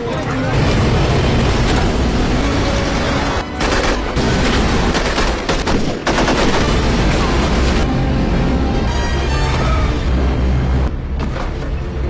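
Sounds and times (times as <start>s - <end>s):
rapid gunfire: 0.6s - 7.8s.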